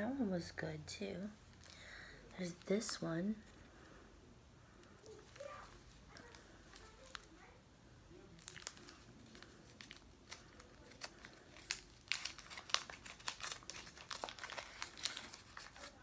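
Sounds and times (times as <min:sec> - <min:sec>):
candy wrapper crinkling: 0:04.8 - 0:07.6, 0:08.2 - 0:16.0.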